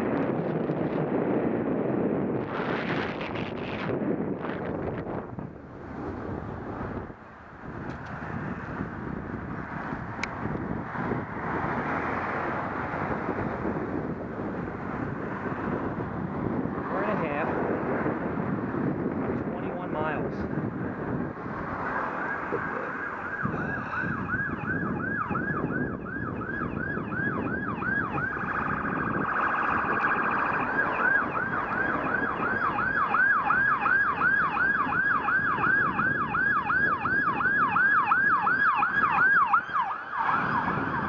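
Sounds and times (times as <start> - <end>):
police siren yelping: 21.7 - 41.0.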